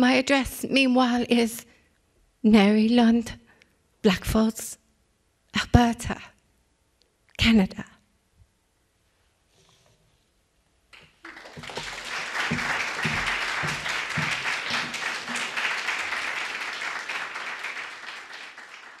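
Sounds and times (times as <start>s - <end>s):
audience applauding: 11.0s - 19.0s.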